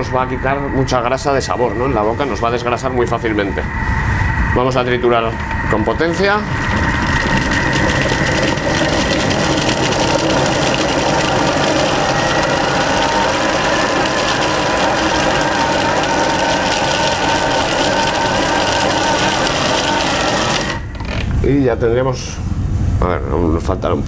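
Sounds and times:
kitchen blender whirring: 4.7 - 21.4.

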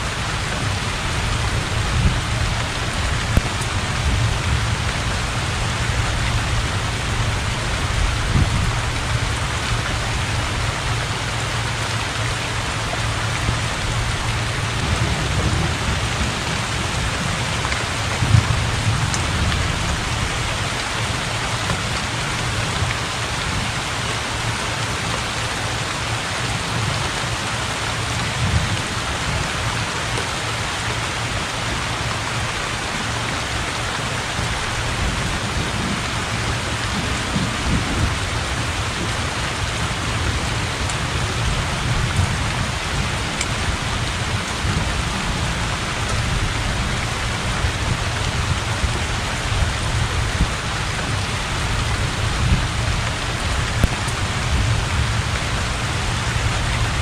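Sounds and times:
heavy rain on water: 0.0 - 57.0
low rumble of thunder: 12.6 - 23.8, 34.4 - 57.0.

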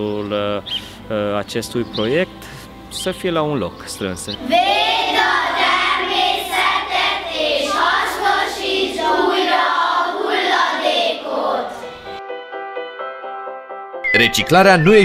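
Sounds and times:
sustained electronic music notes: 0.0 - 12.3
children singing in unison: 4.4 - 12.2.

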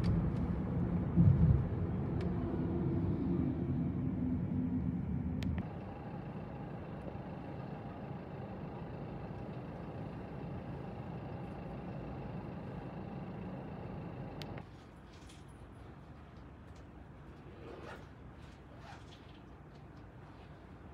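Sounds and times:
road vehicle rumble: 0.0 - 14.7
faint steady whine: 3.6 - 14.8.

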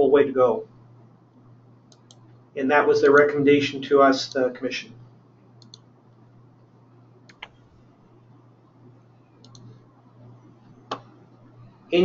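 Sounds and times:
steady low hum: 0.0 - 12.0
faint sharp clicks: 5.6 - 5.9.

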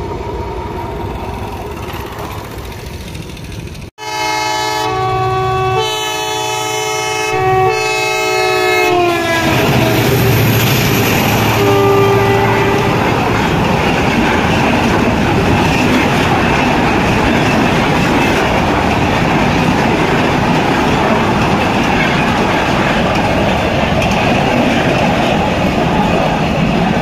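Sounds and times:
freight wagons rumbling on rails: 9.0 - 27.0.

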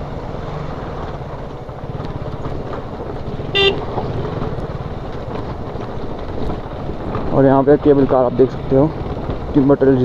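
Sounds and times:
motorcycle engine running: 1.0 - 10.0
horn beep: 3.5 - 3.8.

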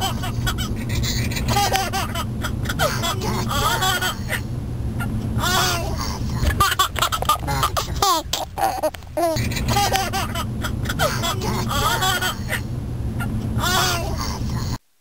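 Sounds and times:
child laughing and giggling: 0.0 - 4.4, 5.5 - 12.6
car road noise rumble: 0.0 - 14.8.

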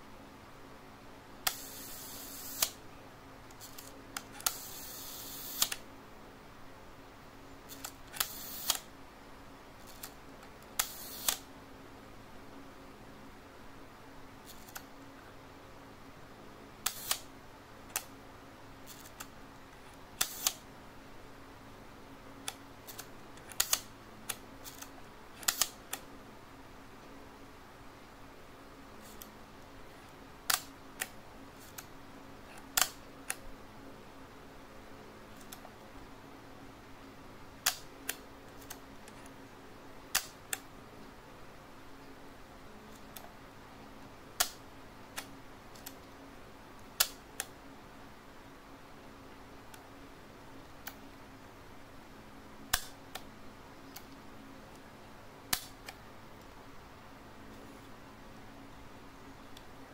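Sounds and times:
camera shutter clicks: 1.5 - 2.8, 3.6 - 5.8, 7.7 - 8.9, 10.8 - 11.5, 16.8 - 17.3, 20.2 - 20.6, 24.6 - 25.8.

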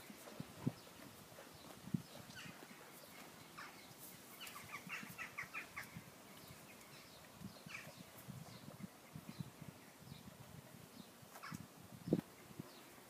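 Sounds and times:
horse grazing: 0.0 - 13.0
bird calling: 2.3 - 8.1.

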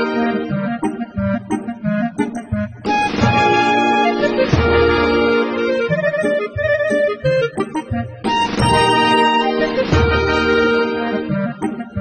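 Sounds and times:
sustained keyboard chords: 0.0 - 12.0.

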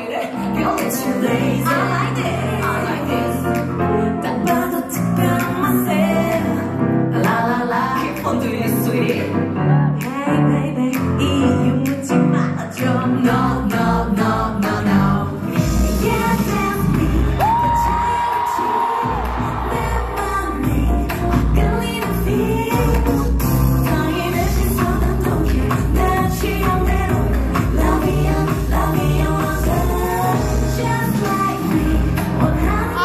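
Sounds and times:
backing music: 0.0 - 33.0
woman singing into microphone: 0.0 - 33.0.

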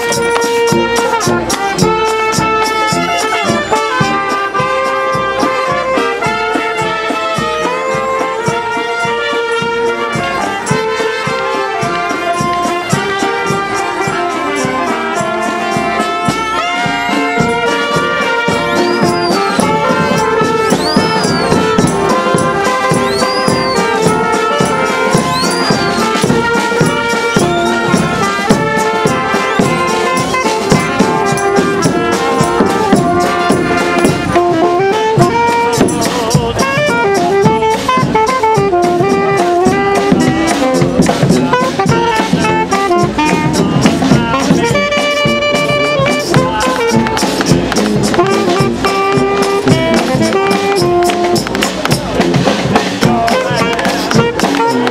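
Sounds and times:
bass drum beat: 0.0 - 54.9
rattling metal hand percussion: 0.0 - 54.9
street brass band playing march: 0.0 - 54.9.

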